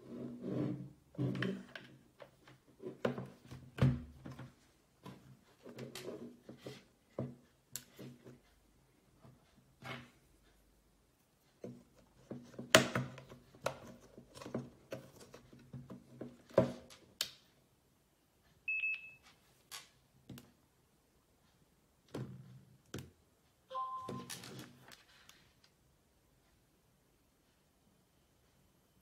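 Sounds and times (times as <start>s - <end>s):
short high beep: 23.7s - 24.3s.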